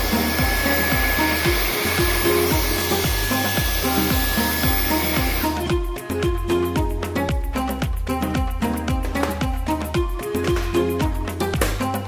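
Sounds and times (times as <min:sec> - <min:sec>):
vacuum cleaner whine: 0:00.0 - 0:05.7
background music with drums: 0:00.0 - 0:12.0.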